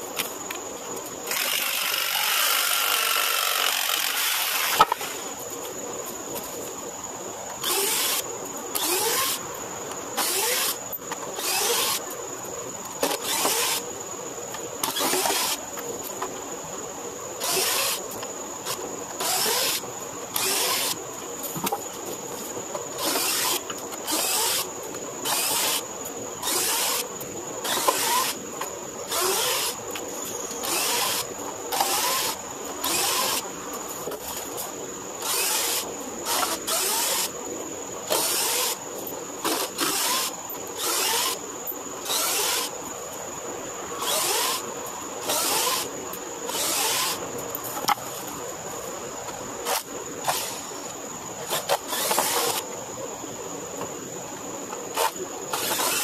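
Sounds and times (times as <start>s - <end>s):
drill spinning in short bursts: 14.8s - 15.6s, 39.5s - 41.4s, 44.0s - 44.6s, 45.2s - 45.9s, 46.5s - 47.2s, 55.0s - 56.0s
power tool running: 55.0s - 56.0s.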